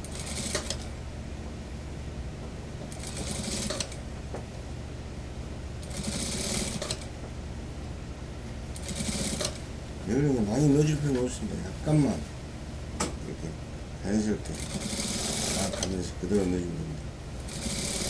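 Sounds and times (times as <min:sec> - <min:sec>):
steady low hum: 0:00.0 - 0:18.0
sewing machine stitching: 0:03.0 - 0:04.0, 0:05.8 - 0:07.0, 0:08.8 - 0:09.6, 0:14.5 - 0:16.0, 0:17.5 - 0:18.0.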